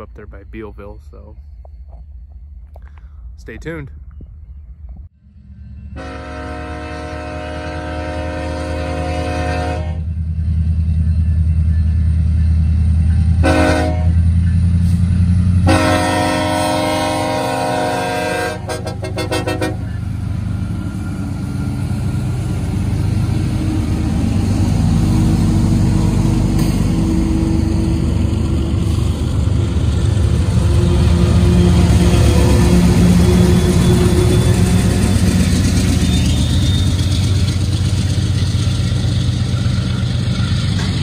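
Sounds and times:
diesel locomotive rumble: 0.0 - 41.0
locomotive air horn blasts: 6.0 - 10.1, 13.4 - 14.2, 15.6 - 20.0.

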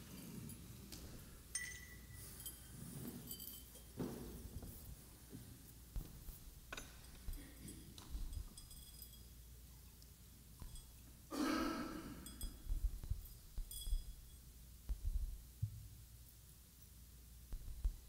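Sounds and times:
metal and glass clinks: 0.0 - 4.8, 6.6 - 11.3, 11.9 - 14.7
person coughing or breathing: 11.3 - 12.4.

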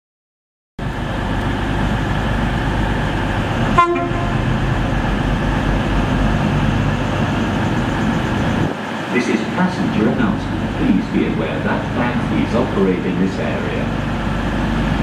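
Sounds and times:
train diesel engines running: 0.8 - 15.0
train horn toot: 3.7 - 4.6.

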